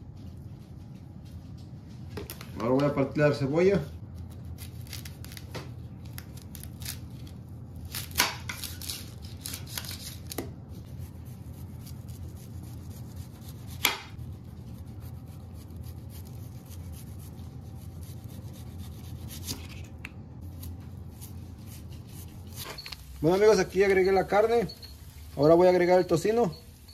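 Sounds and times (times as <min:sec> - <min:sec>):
low steady hum: 0:00.0 - 0:26.9
knife slicing onion: 0:04.4 - 0:23.4.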